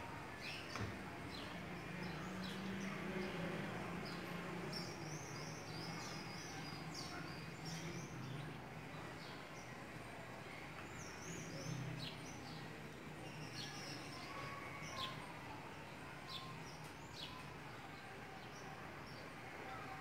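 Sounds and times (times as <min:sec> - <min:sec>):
small birds chirping: 0:00.4 - 0:09.7, 0:10.7 - 0:20.0.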